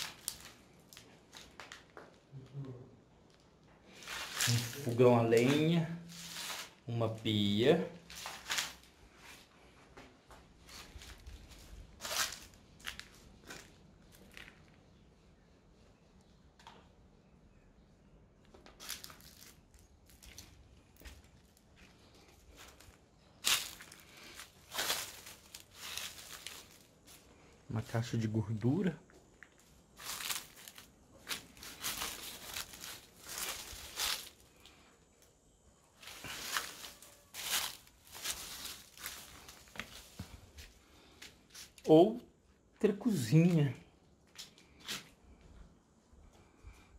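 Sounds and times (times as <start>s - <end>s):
footsteps crunching on rubble: 0.0s - 2.1s, 4.0s - 6.8s, 8.0s - 14.7s, 18.8s - 27.3s, 29.0s - 34.7s, 36.0s - 41.8s.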